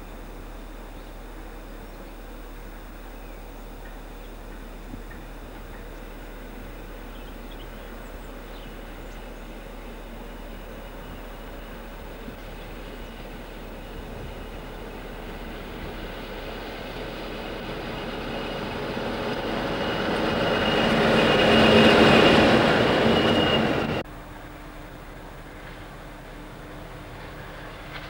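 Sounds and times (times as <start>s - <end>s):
diesel locomotive engines passing: 0.0s - 28.0s
high whistle: 19.3s - 24.0s.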